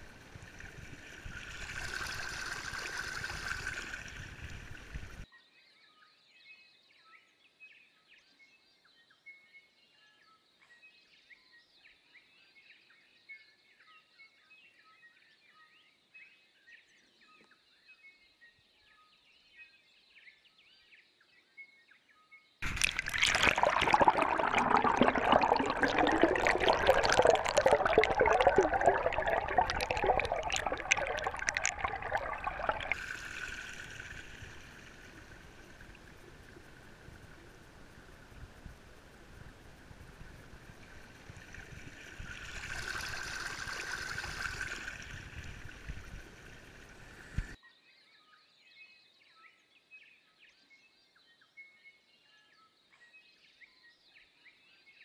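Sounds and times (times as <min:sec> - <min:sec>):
underwater rush of bubbles: 0:00.0 - 0:05.2, 0:22.6 - 0:47.6
water churning from propeller: 0:00.0 - 0:05.2, 0:22.6 - 0:37.9, 0:40.4 - 0:47.6.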